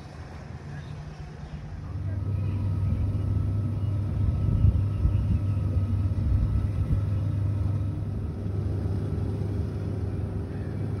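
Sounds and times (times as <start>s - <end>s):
boat engines rumbling: 0.0s - 11.0s
propellers churning water: 0.0s - 11.0s.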